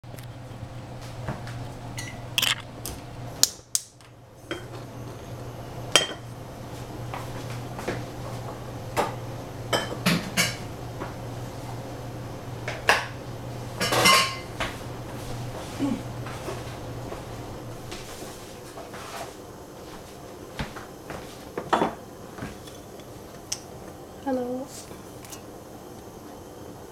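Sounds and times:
steady low hum: 0.0 - 26.9
kitchenware clinking and clattering: 2.0 - 2.7, 13.8 - 14.5.

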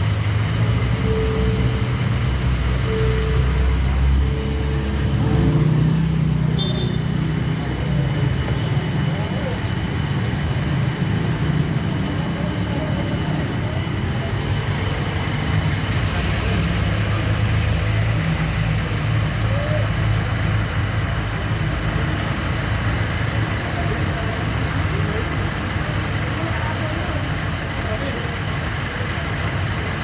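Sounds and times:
diesel engine idling: 0.0 - 30.0.

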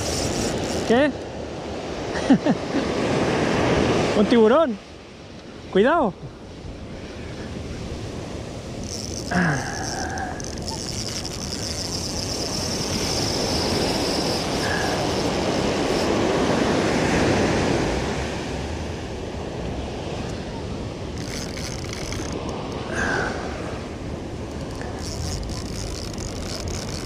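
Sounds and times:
high steady buzz: 0.0 - 1.2, 8.7 - 16.7
surf on rocky shore: 0.0 - 27.0.

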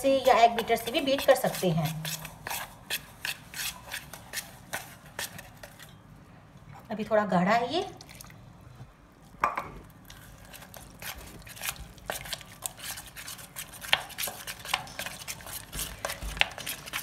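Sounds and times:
spoon scraping metal bowl: 10.5 - 17.0.

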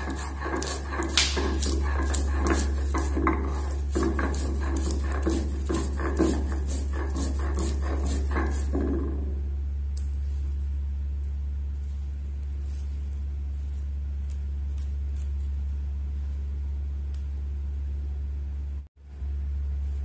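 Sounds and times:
stone roller grinding on stone: 0.0 - 9.4
steady low hum: 0.0 - 20.0.

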